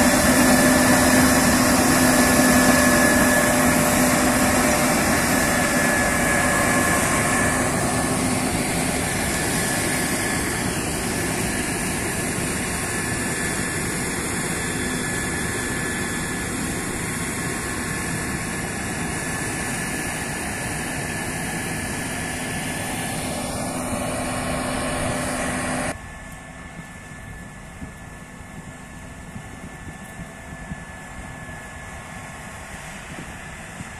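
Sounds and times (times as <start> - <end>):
combine harvester engine drone: 0.0 - 33.9
high whine: 0.0 - 33.9.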